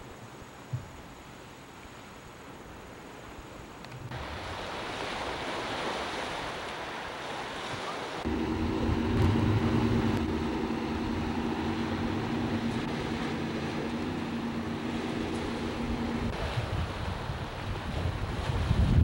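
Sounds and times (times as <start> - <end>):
surf on a beach: 2.2 - 19.0
waves on rocky shore: 4.1 - 19.0
steady low hum: 8.2 - 16.6
wind on microphone: 8.2 - 19.0.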